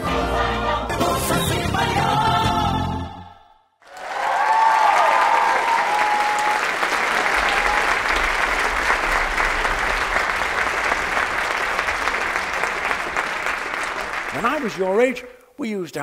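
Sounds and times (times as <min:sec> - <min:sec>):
audience applauding: 0:03.8 - 0:15.3
cheers and whoops: 0:03.9 - 0:08.5.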